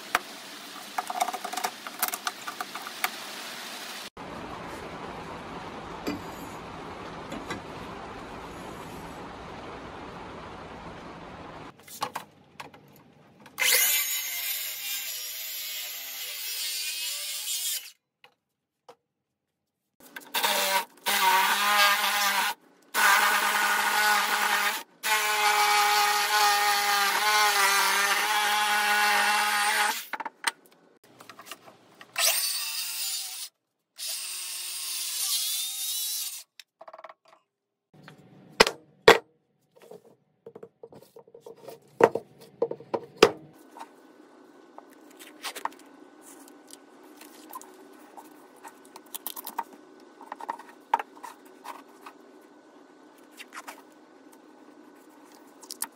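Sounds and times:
power saw cutting wood: 0:13.6 - 0:18.0, 0:20.2 - 0:30.1.

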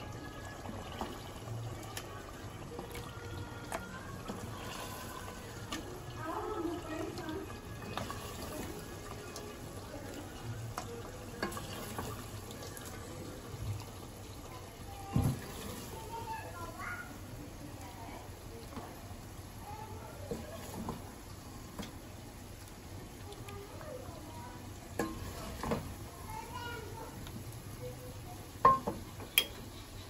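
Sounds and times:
ladle clinking against steel pots: 0:28.6 - 0:29.8.

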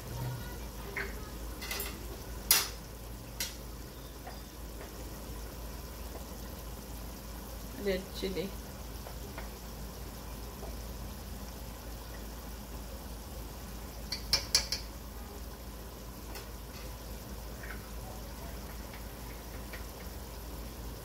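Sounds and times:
oil and onions sizzling: 0:00.0 - 0:21.0
metal utensil knocking pot: 0:14.1 - 0:14.9.

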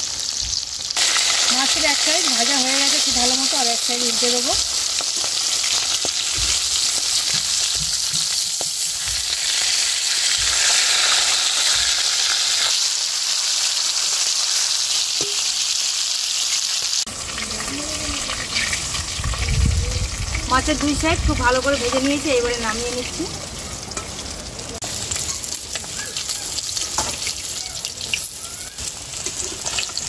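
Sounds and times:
fish sizzling in oil: 0:00.0 - 0:30.0
metal spatula knocking and scraping: 0:06.0 - 0:09.4.

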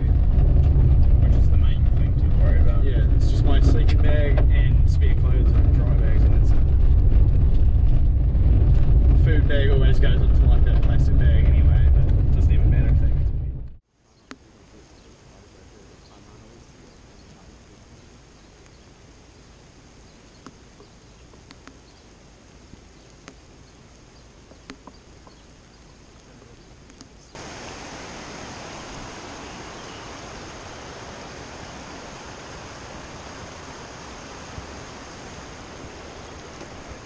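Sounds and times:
shallow rocky stream rushing: 0:27.4 - 0:37.0.

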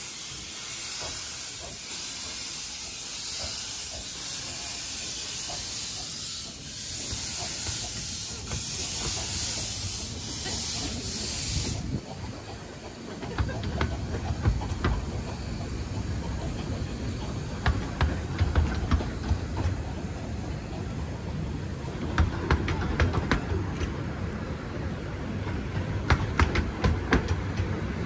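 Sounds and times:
steam hissing: 0:00.0 - 0:22.0
wheels clicking on rails: 0:00.0 - 0:28.0.

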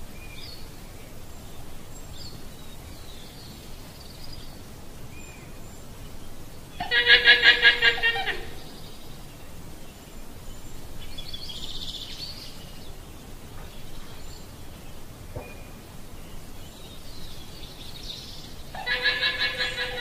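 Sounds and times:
low background noise: 0:00.0 - 0:20.0
llama calls: 0:06.8 - 0:08.7, 0:18.7 - 0:20.0.

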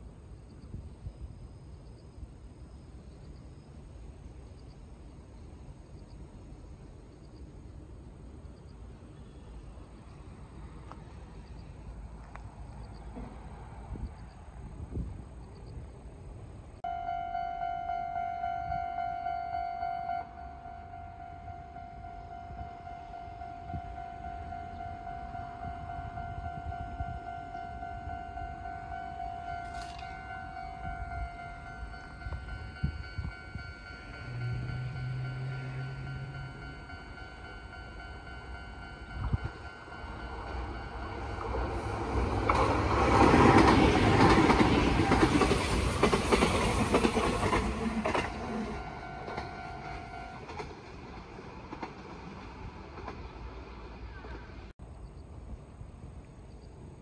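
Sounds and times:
electric train passing: 0:00.0 - 0:57.0
level crossing warning bell: 0:16.8 - 0:42.5, 0:46.9 - 0:50.6
wheels clattering over rail joints: 0:40.3 - 0:54.5.

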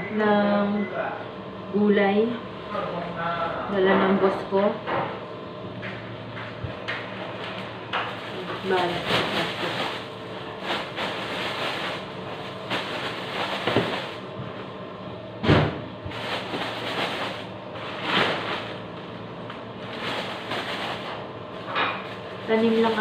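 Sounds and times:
plastic bag crinkling: 0:08.1 - 0:14.4, 0:16.1 - 0:18.9, 0:19.8 - 0:23.0
leafy greens rustling: 0:08.3 - 0:14.5, 0:22.0 - 0:23.0.

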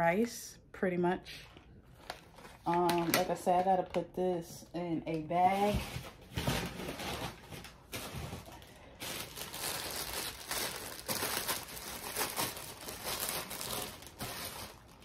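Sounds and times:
plastic bag crinkling: 0:01.9 - 0:03.7, 0:05.7 - 0:15.0.

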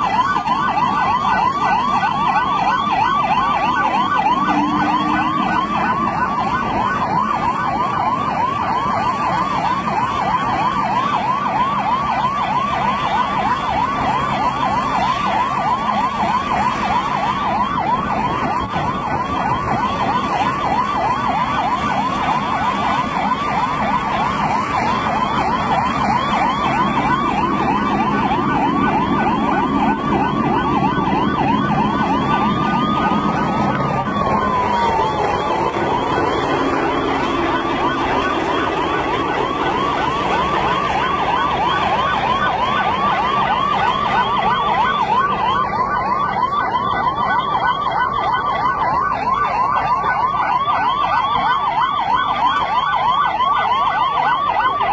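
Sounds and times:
emergency siren yelping: 0:00.0 - 0:54.9
slower rising siren tone: 0:00.0 - 0:54.9.

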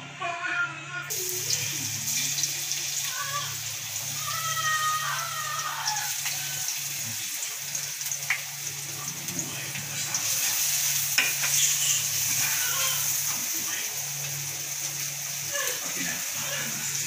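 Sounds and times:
garlic sizzling in hot oil: 0:01.1 - 0:17.0.

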